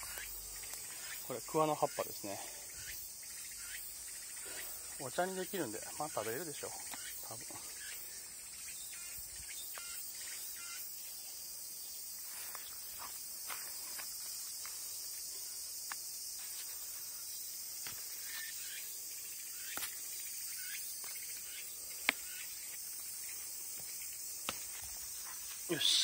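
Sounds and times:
cicadas singing: 0:00.0 - 0:26.0
leaves snapping as picked: 0:00.1 - 0:00.9, 0:22.0 - 0:22.4, 0:24.4 - 0:25.0.

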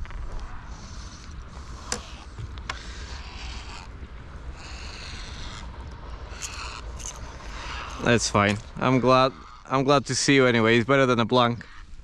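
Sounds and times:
wind rumbling on microphone: 0:00.0 - 0:12.0
soft hissing: 0:00.2 - 0:08.8.

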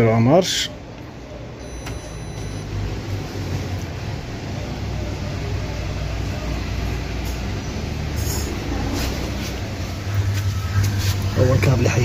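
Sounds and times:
control panel beep: 0:01.6 - 0:02.9.

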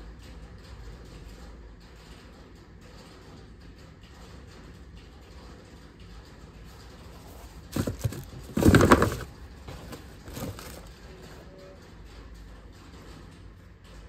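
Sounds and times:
tissue paper crinkling: 0:07.3 - 0:10.9.

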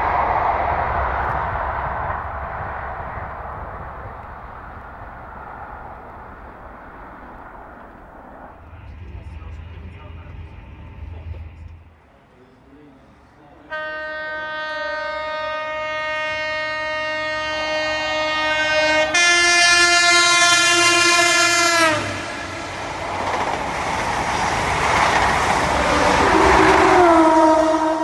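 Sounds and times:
train rushing past: 0:00.0 - 0:28.0
train horn: 0:13.6 - 0:22.8, 0:25.9 - 0:28.0.

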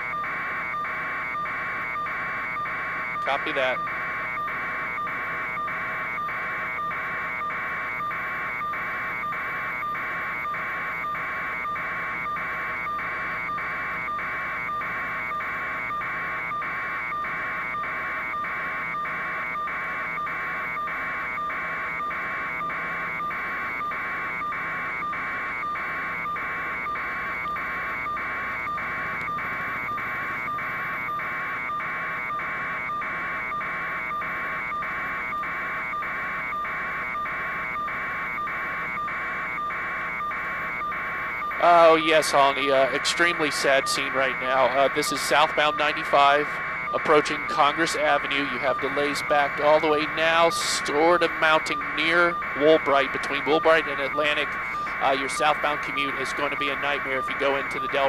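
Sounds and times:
faint steady hum: 0:00.0 - 0:58.0
pulsing electronic buzzer: 0:00.0 - 0:58.0.

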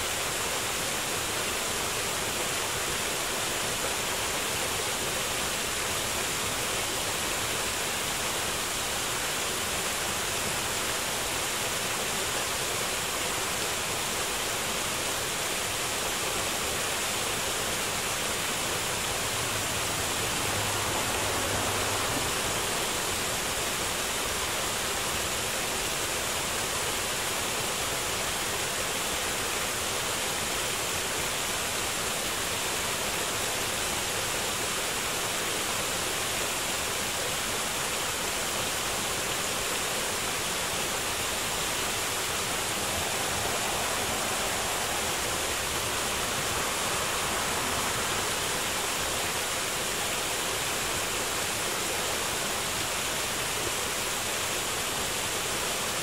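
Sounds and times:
small waterfall rushing: 0:00.0 - 0:56.0.

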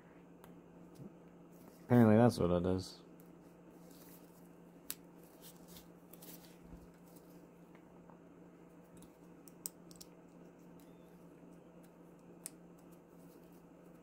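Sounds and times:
low steady hum: 0:00.0 - 0:14.0
faint handling noises: 0:03.2 - 0:14.0.

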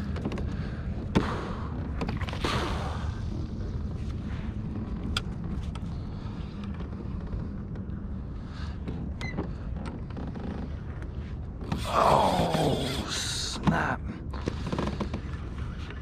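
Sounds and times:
steady low rumble: 0:00.0 - 0:16.0
light clicks and creaks: 0:03.8 - 0:11.9, 0:13.6 - 0:16.0.

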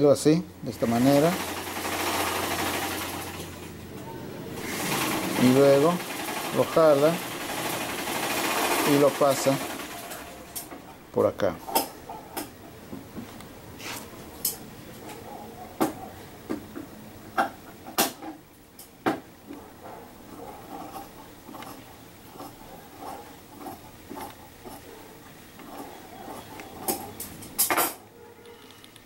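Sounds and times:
fingers tapping sewing machine: 0:00.7 - 0:03.7, 0:04.6 - 0:10.8, 0:20.3 - 0:28.0.

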